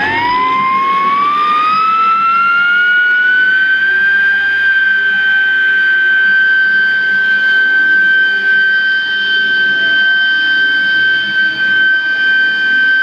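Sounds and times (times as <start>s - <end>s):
electric siren wailing: 0.0s - 13.0s.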